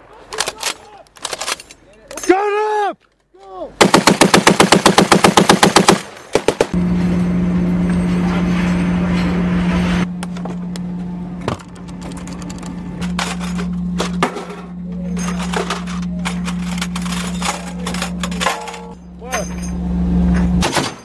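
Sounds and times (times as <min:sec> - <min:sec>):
heavy machine gun firing: 0:03.8 - 0:06.8
steady low hum: 0:06.7 - 0:20.8.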